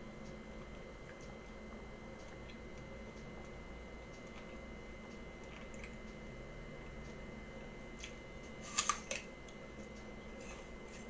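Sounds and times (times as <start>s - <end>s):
apple crunching under a bite: 8.0s - 9.3s.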